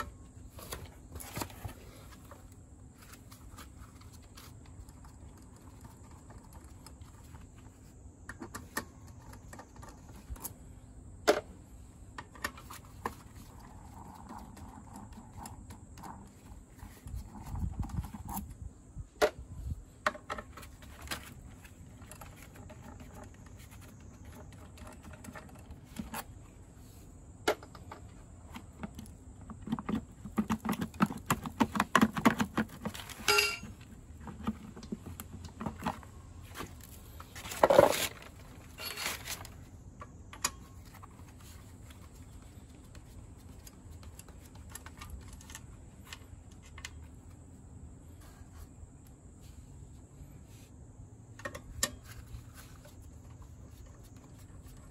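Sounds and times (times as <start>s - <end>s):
bolts and plastic cover rattling: 27.4s - 39.6s
socket wrench clinking: 33.2s - 33.7s.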